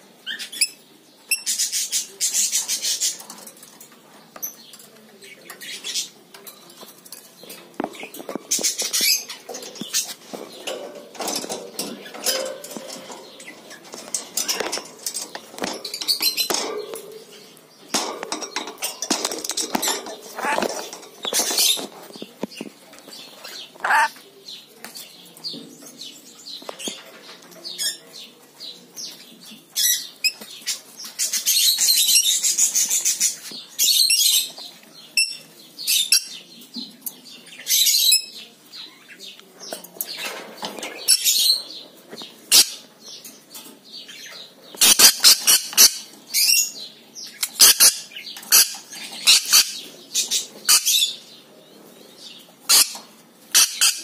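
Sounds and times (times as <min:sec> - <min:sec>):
parrot chirping and squawking: 0:20.4 - 0:21.8, 0:23.4 - 0:24.2, 0:44.8 - 0:46.0, 0:52.7 - 0:54.0.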